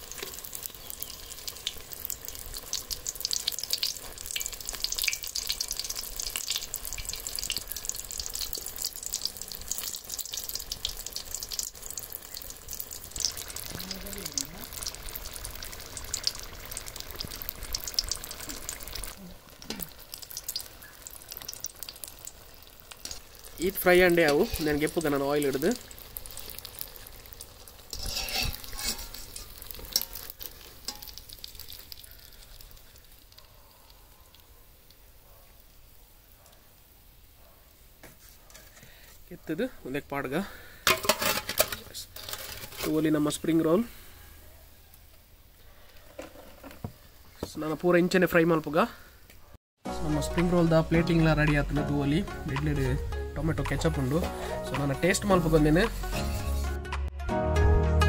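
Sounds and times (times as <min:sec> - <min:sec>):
food deep-frying in hot oil: 0:00.0 - 0:49.5, 0:50.1 - 0:56.7
skimmer scraping and clinking on pan: 0:24.2 - 0:25.0, 0:27.9 - 0:31.2, 0:40.8 - 0:43.5.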